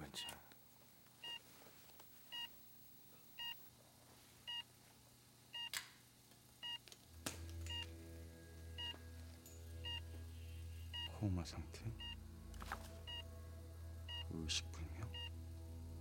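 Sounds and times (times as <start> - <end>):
patient monitor beeping: 1.2 - 3.7, 4.5 - 4.7, 7.7 - 7.9, 8.8 - 9.0, 9.8 - 10.1, 10.9 - 11.2, 12.0 - 12.2, 13.0 - 13.3, 14.1 - 14.3, 15.1 - 15.4
low droning hum: 7.1 - 16.0.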